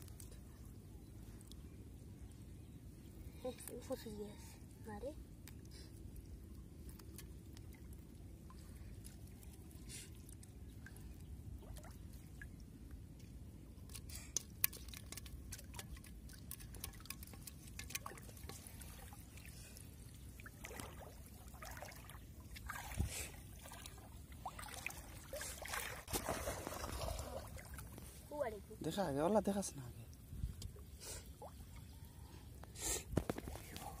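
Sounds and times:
water trickling and splashing: 0:04.9 - 0:34.0
loud splashes: 0:24.6 - 0:27.8.

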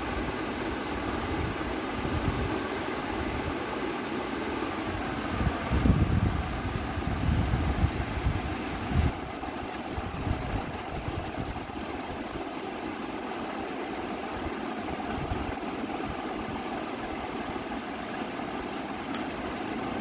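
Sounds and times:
mechanical hum: 0:00.0 - 0:20.0
sharp click: 0:19.1 - 0:19.4.

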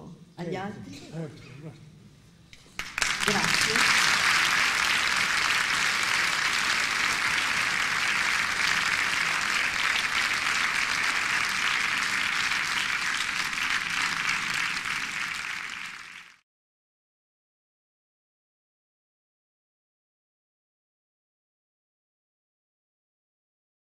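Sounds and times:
audience applauding: 0:02.7 - 0:16.4.

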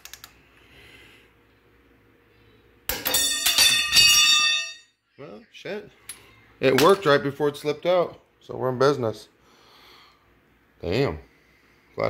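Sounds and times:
steel wrench clanging on concrete: 0:02.9 - 0:04.9.

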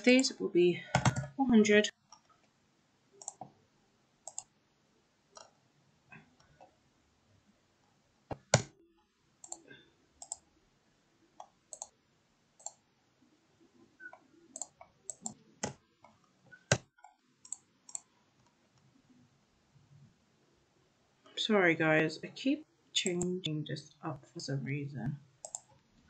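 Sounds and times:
mouse and keyboard clicks: 0:03.2 - 0:03.6, 0:04.2 - 0:04.5, 0:14.0 - 0:15.8, 0:16.5 - 0:18.6, 0:25.4 - 0:25.7.

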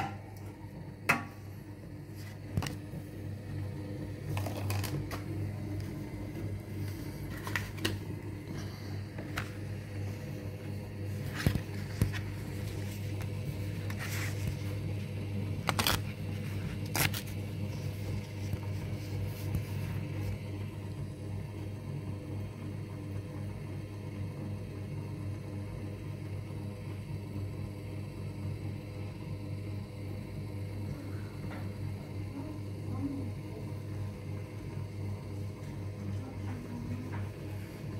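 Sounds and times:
machine humming: 0:00.0 - 0:37.9
paper scraping: 0:15.6 - 0:20.3.

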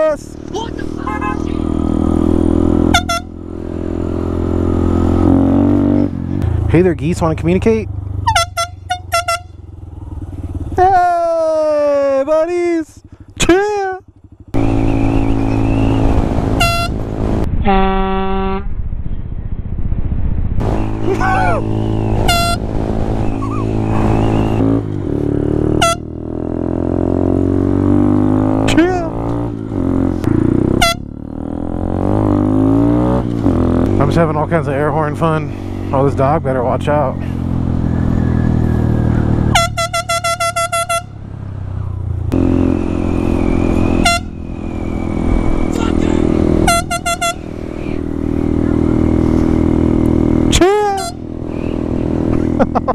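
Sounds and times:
motorcycle engine running: 0:00.0 - 0:17.5, 0:20.6 - 0:52.9
short high horn toot: 0:02.8 - 0:03.3, 0:17.6 - 0:18.7, 0:22.2 - 0:22.6, 0:25.7 - 0:26.0, 0:39.5 - 0:41.1, 0:44.0 - 0:44.3, 0:46.6 - 0:47.4
air horn blast: 0:02.8 - 0:03.4, 0:08.2 - 0:09.6, 0:16.5 - 0:17.0, 0:17.6 - 0:18.7, 0:22.2 - 0:22.7, 0:25.7 - 0:26.1, 0:30.7 - 0:31.1, 0:39.5 - 0:41.2, 0:44.0 - 0:44.4, 0:46.5 - 0:47.6.

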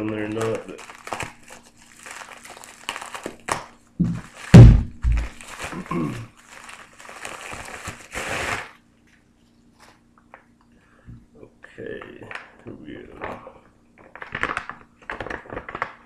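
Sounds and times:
plastic mailer crinkling: 0:00.0 - 0:08.8, 0:14.0 - 0:16.0
heavy thumps: 0:04.0 - 0:05.4.

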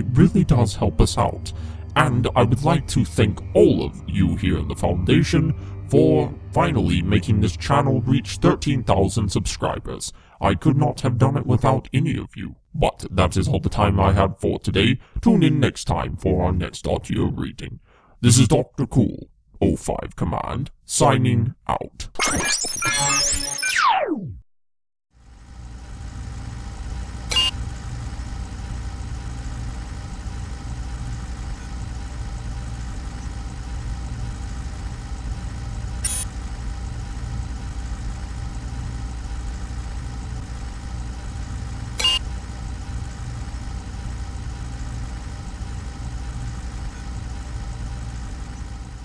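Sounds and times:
low engine-like rumble: 0:00.0 - 0:10.3.

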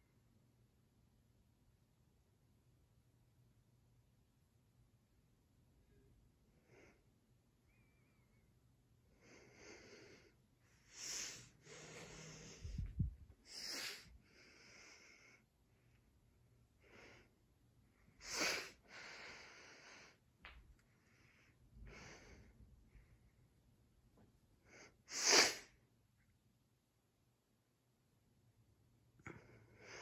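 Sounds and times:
person breathing and sniffing: 0:09.2 - 0:15.4, 0:18.2 - 0:20.2, 0:24.7 - 0:25.7.

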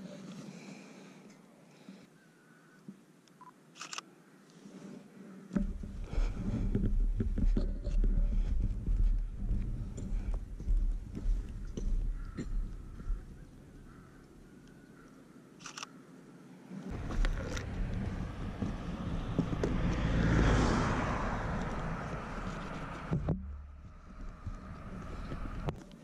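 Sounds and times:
vehicle passing on road: 0:05.6 - 0:14.0, 0:16.8 - 0:25.8
camera handling clicks: 0:15.6 - 0:15.9.

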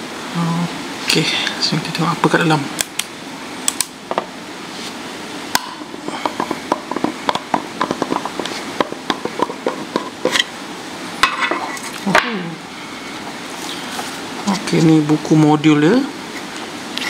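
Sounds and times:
metal lid scraping off: 0:05.6 - 0:10.5, 0:11.2 - 0:12.0.

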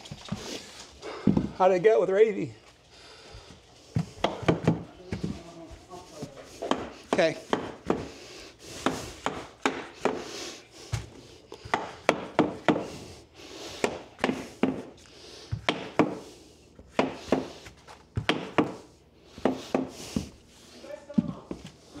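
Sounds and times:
flooring nailer knocking wood: 0:04.0 - 0:04.9, 0:06.6 - 0:08.1, 0:08.8 - 0:10.2, 0:11.7 - 0:12.9, 0:13.8 - 0:14.9, 0:15.6 - 0:16.2, 0:18.2 - 0:18.8, 0:19.4 - 0:20.3.

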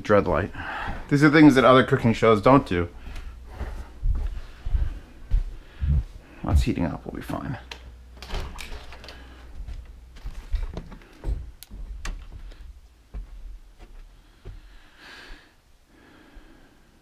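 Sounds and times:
low rumble: 0:02.9 - 0:06.8.

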